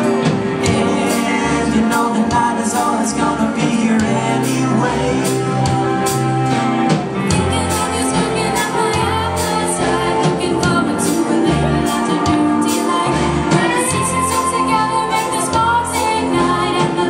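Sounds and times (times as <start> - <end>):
live rock band playing: 0.0 - 17.0
girls singing: 7.3 - 17.0.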